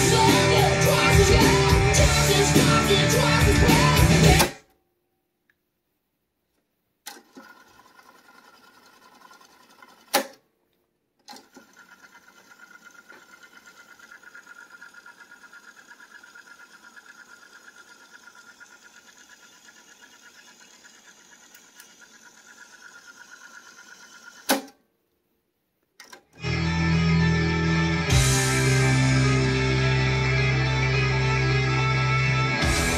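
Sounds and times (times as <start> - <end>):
cassette tape whirring: 0.0 - 4.6, 11.3 - 24.7.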